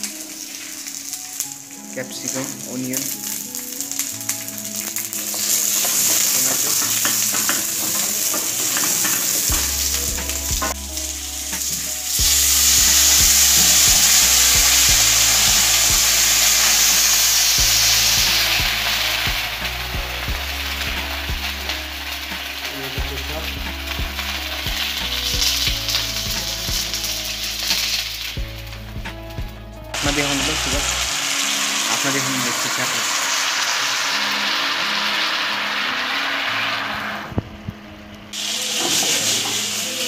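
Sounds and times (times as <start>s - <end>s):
vegetables sizzling in oil: 0.0s - 28.9s, 29.9s - 37.4s, 38.4s - 40.0s
spatula scraping pan: 5.3s - 10.0s.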